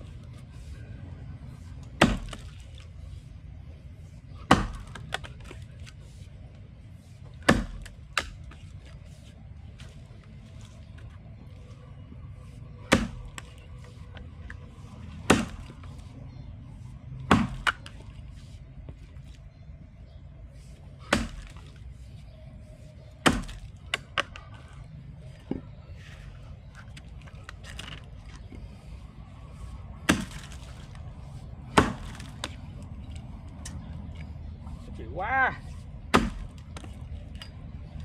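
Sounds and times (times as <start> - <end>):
axe chopping log: 1.8 - 2.7, 4.4 - 5.7, 7.4 - 8.6, 12.8 - 13.6, 14.4 - 16.0, 17.2 - 18.0, 21.0 - 21.7, 23.2 - 24.5, 30.0 - 31.0, 31.6 - 32.6, 36.0 - 37.0.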